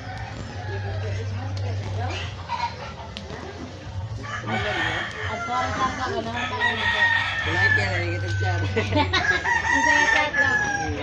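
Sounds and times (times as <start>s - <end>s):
roosters crowing: 0.0s - 1.5s, 3.9s - 11.0s.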